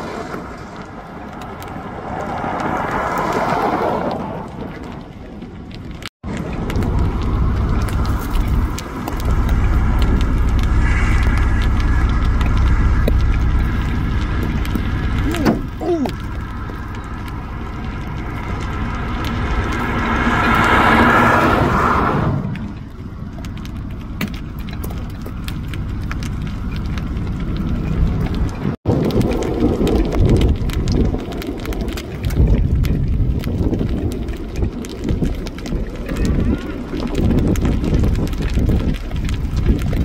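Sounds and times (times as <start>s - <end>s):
low wind rumble: 0.0s - 40.0s
vehicle tyres passing: 0.0s - 40.0s.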